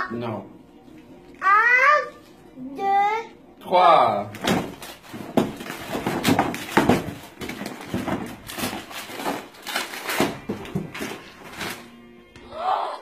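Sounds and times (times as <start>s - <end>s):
wrapping paper tearing and crumpling: 4.4s - 11.9s.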